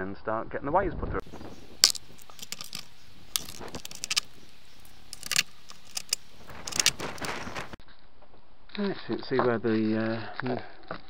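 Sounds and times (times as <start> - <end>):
metal bolts and washers clinking: 1.8 - 7.8.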